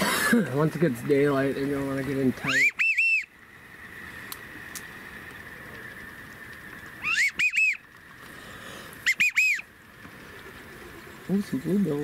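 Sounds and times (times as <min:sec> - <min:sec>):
faint background hiss: 0:00.0 - 0:12.0
duck whistling call: 0:02.4 - 0:03.3, 0:07.0 - 0:07.9, 0:09.0 - 0:09.7.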